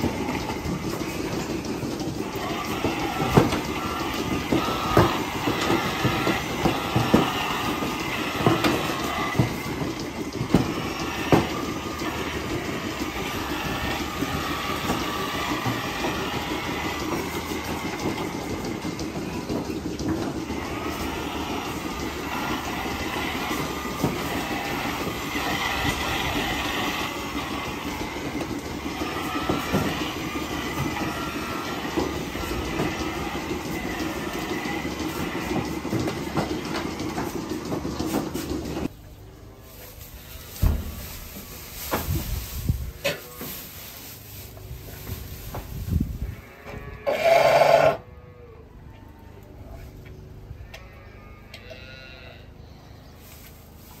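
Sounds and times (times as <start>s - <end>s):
milking clusters clanking: 0.0s - 38.9s
milking machines running: 0.0s - 54.0s.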